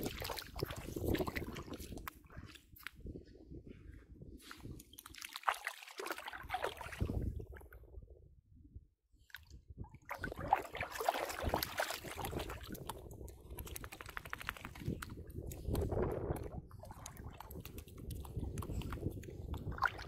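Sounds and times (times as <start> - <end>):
dog paws splashing through water: 0.0 - 3.0, 4.5 - 7.3, 10.1 - 20.0.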